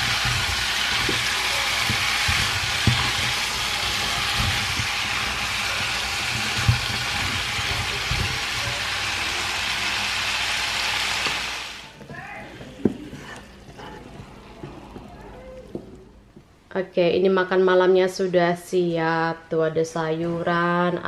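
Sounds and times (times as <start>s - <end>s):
vegetables sizzling in frying pan: 0.0s - 11.9s.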